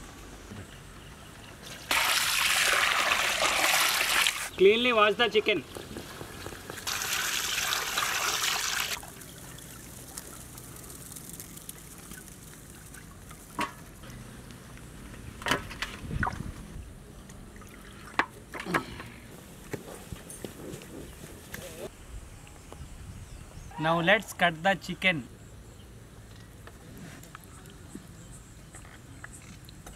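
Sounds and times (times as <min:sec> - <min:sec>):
water splashing: 0:01.6 - 0:04.6, 0:05.4 - 0:14.2.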